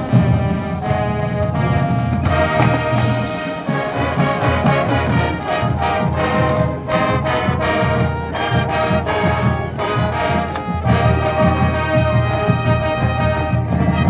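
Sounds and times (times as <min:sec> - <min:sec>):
brass playing sustained chords: 0:00.0 - 0:14.0
drum hits: 0:02.2 - 0:05.1.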